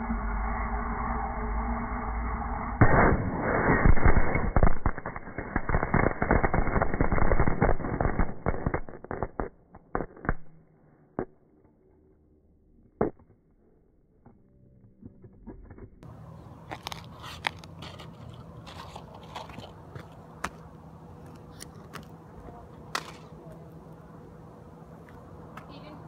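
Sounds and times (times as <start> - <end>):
loud firework burst: 0.0 - 10.5
firework fizzing hiss: 2.8 - 9.3
rapid crackling pops: 2.8 - 11.4.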